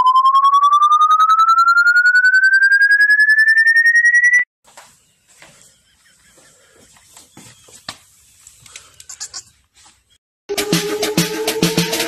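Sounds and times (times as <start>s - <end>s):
pulsing rising electronic tone: 0.0s - 4.5s.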